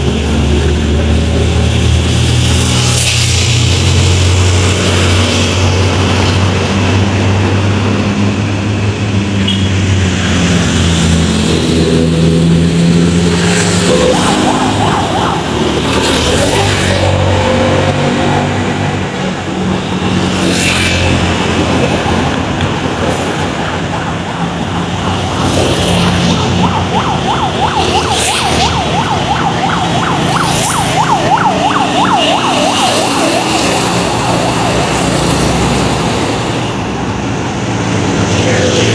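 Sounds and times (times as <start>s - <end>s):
heavy truck engines passing: 0.0s - 38.9s
siren yelping: 13.4s - 18.2s, 25.2s - 36.4s.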